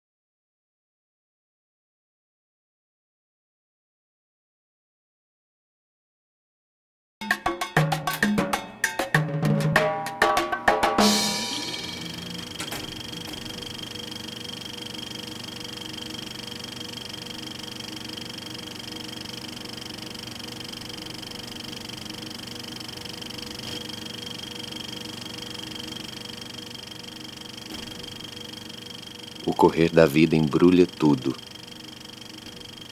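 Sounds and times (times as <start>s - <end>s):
small fan motor humming: 11.0s - 32.9s.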